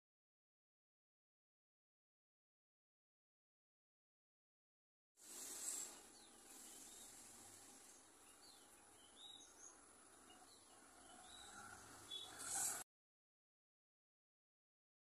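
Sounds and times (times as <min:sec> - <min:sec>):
steady faint hiss: 0:05.2 - 0:12.8
high bird chirps: 0:05.3 - 0:12.8.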